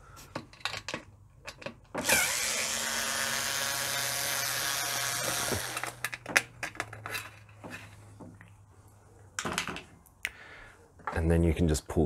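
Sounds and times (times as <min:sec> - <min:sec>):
clicks of screws and metal panel: 0:00.3 - 0:02.1
power screwdriver whining: 0:02.0 - 0:06.2.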